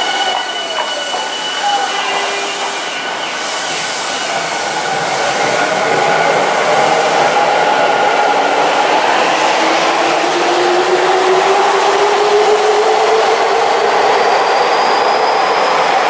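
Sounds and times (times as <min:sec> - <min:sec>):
train traction motor whine: 0:00.0 - 0:04.6
train wheels on rail: 0:00.0 - 0:16.0.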